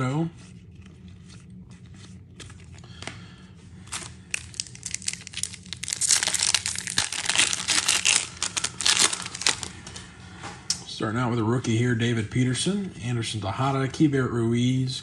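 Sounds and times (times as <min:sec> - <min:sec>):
plastic wrapper tearing and crinkling: 0:03.8 - 0:09.8.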